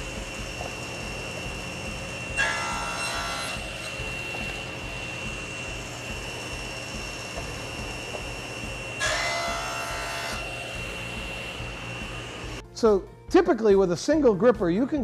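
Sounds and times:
table saw whining: 0:00.0 - 0:12.6
saw blade ripping wood: 0:02.3 - 0:04.7, 0:08.9 - 0:10.5.

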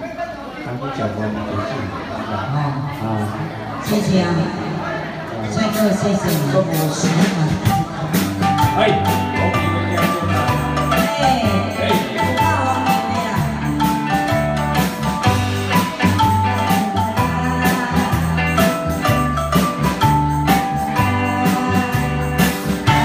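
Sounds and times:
bass: 0:05.4 - 0:23.0
drum kit: 0:05.8 - 0:23.0
electronic keyboard melody: 0:07.6 - 0:23.0.

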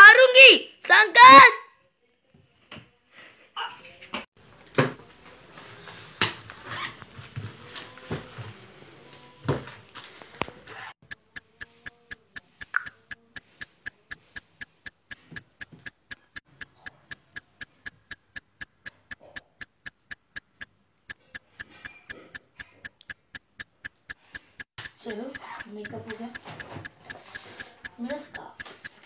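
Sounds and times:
clock ticking: 0:11.0 - 0:29.0.

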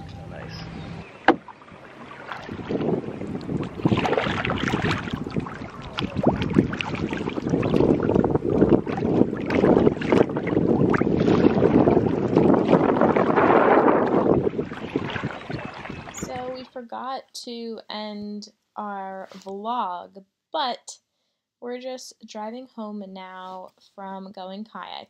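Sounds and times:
wind buffeting microphone: 0:00.0 - 0:16.7
water splashing against kayak: 0:01.1 - 0:16.7.

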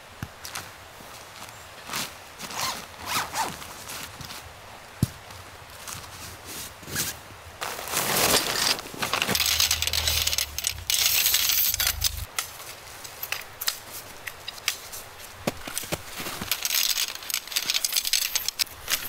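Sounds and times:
tent poles clinking: 0:07.0 - 0:19.0
nylon bag rustling: 0:07.6 - 0:12.3, 0:15.6 - 0:19.0.

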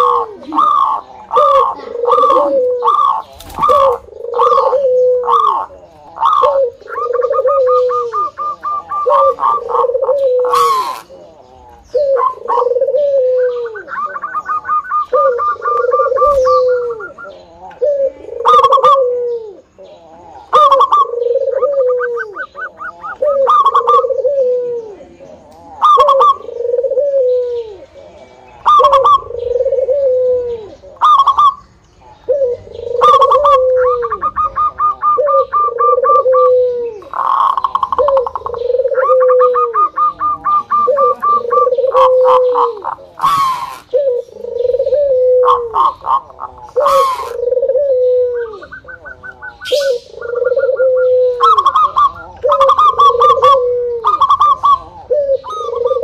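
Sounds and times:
dove cooing: 0:00.0 - 0:56.0
fast high bird notes: 0:48.6 - 0:54.8.

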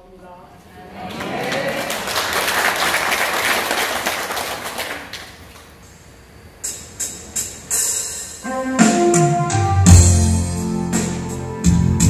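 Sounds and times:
audience applauding: 0:01.0 - 0:05.7.

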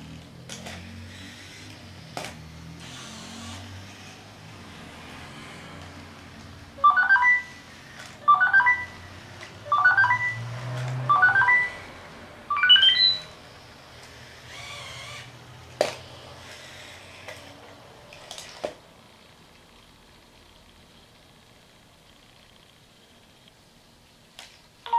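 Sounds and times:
faint low motor whir: 0:00.0 - 0:06.8, 0:12.8 - 0:24.8
robot dog rising beeps: 0:06.8 - 0:11.8, 0:12.5 - 0:13.3.

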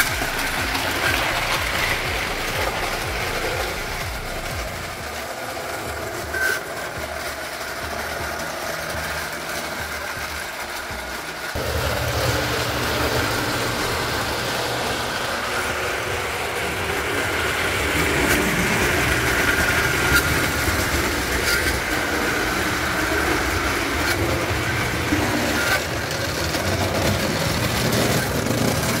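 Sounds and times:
toy train motor hum and rumble: 0:00.0 - 0:29.0.

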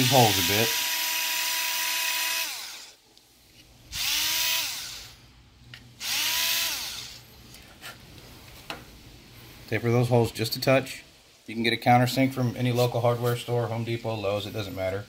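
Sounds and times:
cordless drill motor whine: 0:00.0 - 0:03.0, 0:03.9 - 0:05.2, 0:06.0 - 0:07.2.

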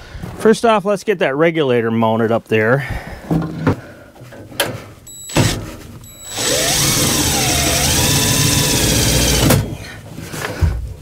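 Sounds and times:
cordless drill labouring: 0:05.3 - 0:09.8
drill clicks: 0:06.2 - 0:09.7.

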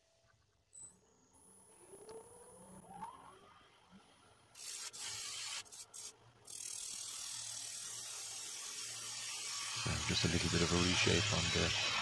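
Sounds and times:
lathe tool cutting wood: 0:07.1 - 0:12.0.

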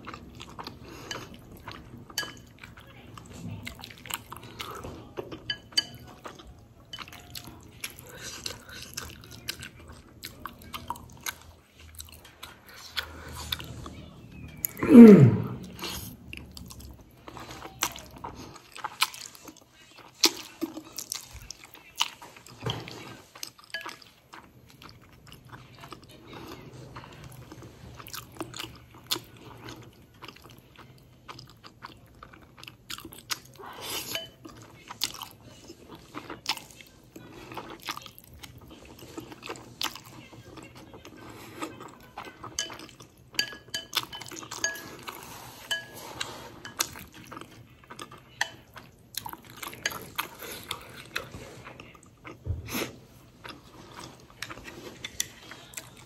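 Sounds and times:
slurping and chewing noodles: 0:00.0 - 0:56.0.

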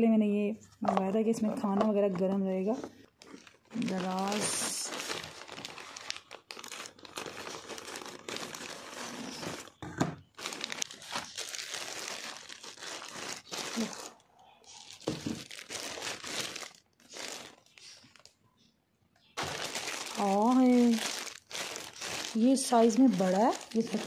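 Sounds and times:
plastic crinkling and rustling: 0:00.8 - 0:24.0
scissors cutting plastic bag: 0:03.2 - 0:09.7, 0:10.4 - 0:14.1, 0:19.4 - 0:24.0.

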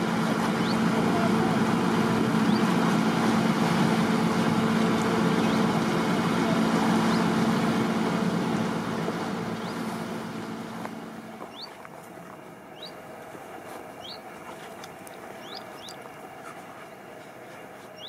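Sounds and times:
boat engine humming: 0:00.0 - 0:18.0
rushing water: 0:00.0 - 0:18.0.

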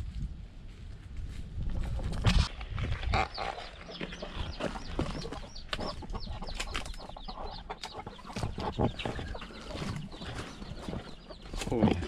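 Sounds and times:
footsteps in dry leaves: 0:00.0 - 0:05.4, 0:09.1 - 0:11.8
chickens clucking: 0:01.7 - 0:12.0.

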